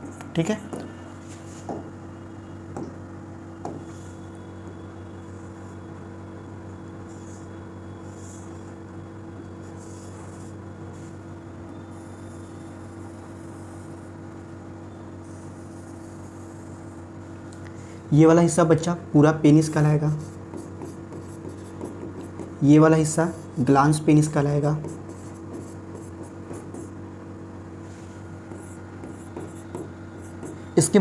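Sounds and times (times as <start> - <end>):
electrical hum: 0.0 - 31.0
stylus scratching on screen: 11.9 - 14.1, 15.2 - 17.0, 19.7 - 27.0, 27.9 - 31.0.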